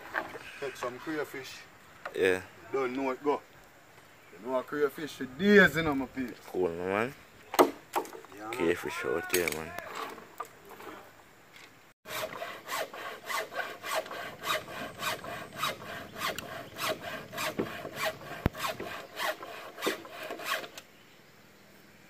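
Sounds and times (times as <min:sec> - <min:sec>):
saw cutting bamboo: 0:12.1 - 0:20.8.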